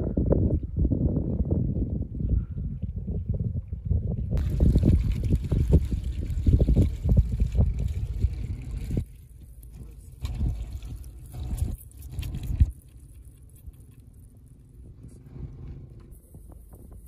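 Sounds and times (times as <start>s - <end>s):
water splashing through colander: 4.4s - 14.6s.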